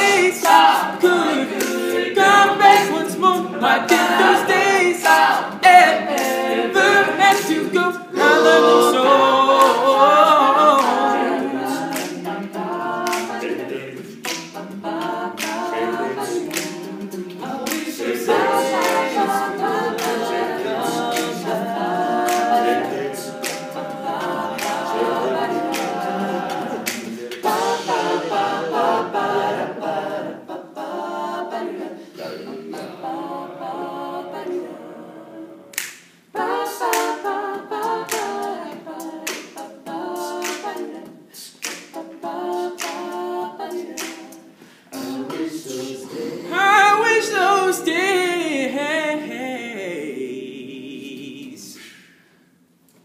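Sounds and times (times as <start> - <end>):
sharp clicking beat: 0.0 - 9.0, 9.6 - 29.3, 35.8 - 44.5
male a cappella group singing: 0.0 - 52.6.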